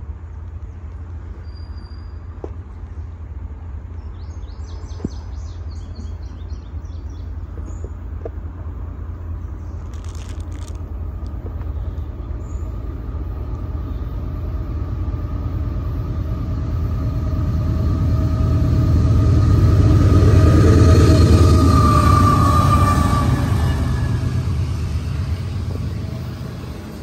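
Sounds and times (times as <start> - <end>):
diesel locomotive rumble: 0.0 - 27.0
steady whine: 6.7 - 27.0.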